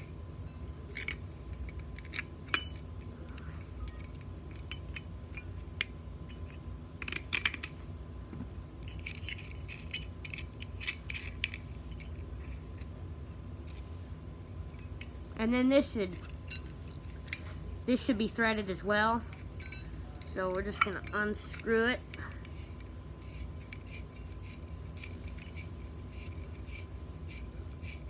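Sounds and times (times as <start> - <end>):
pliers clicking and scraping on metal: 0.7 - 7.8, 8.8 - 12.9, 16.0 - 28.0
small metallic clinks: 16.0 - 17.7, 18.3 - 28.0.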